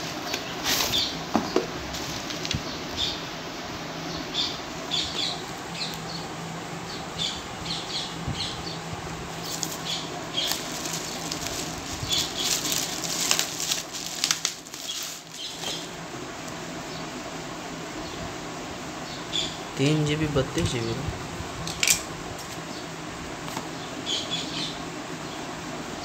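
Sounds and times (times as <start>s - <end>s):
bubble wrap crinkling: 0.0s - 1.1s, 1.9s - 2.7s, 9.3s - 16.0s
paper rustling: 0.0s - 1.1s, 1.9s - 2.7s, 9.3s - 15.9s.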